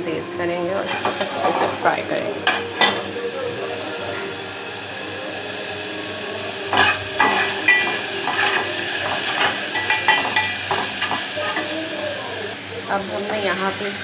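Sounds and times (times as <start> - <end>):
food sizzling in hot oil: 0.0 - 14.0
metal spatula scraping pot: 0.8 - 3.0, 6.7 - 11.7.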